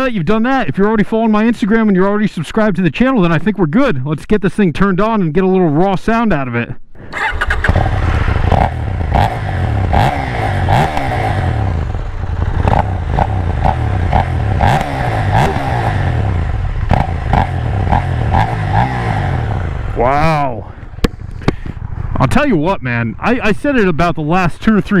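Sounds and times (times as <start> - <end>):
motorcycle engine revving: 7.0 - 20.1.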